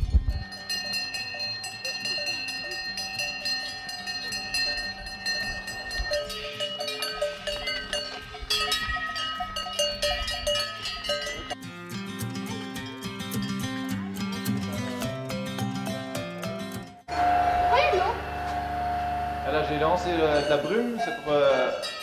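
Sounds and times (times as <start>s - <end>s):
cowbells clanking: 0.0s - 11.6s, 19.5s - 22.0s.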